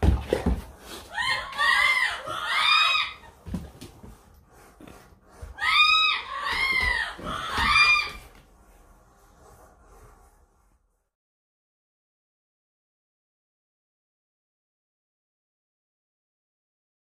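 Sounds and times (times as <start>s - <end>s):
dog whining squeals: 1.2s - 3.3s, 5.6s - 8.3s.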